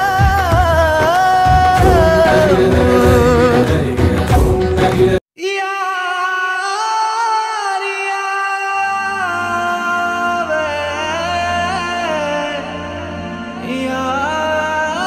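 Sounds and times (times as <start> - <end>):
background song: 0.0 - 15.0
low steady drone: 1.8 - 4.0
solo voice singing held notes: 1.8 - 5.2.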